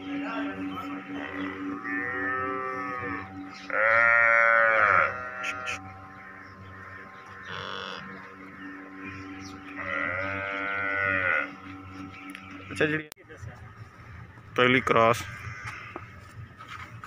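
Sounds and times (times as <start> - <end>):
animal bleating: 1.1 - 8.2, 9.7 - 11.7, 15.1 - 16.2.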